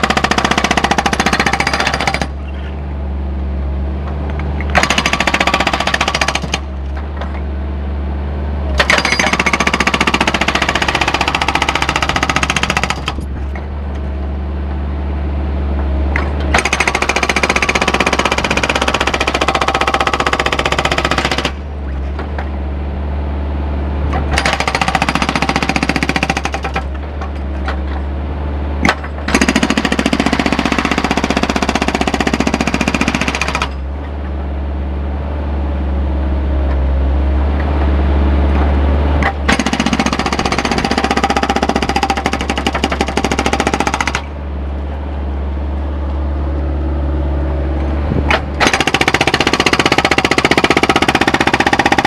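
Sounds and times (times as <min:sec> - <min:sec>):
hydraulic breaker hammering concrete: 0:00.0 - 0:02.4, 0:04.7 - 0:06.7, 0:08.8 - 0:13.3, 0:16.5 - 0:21.6, 0:24.3 - 0:27.0, 0:28.8 - 0:33.8, 0:39.2 - 0:44.3, 0:48.3 - 0:52.0.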